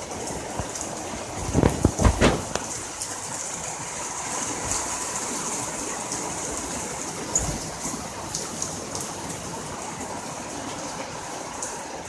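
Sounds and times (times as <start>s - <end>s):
heavy rain and hail: 0.0s - 12.0s
dull thump: 1.6s - 2.7s.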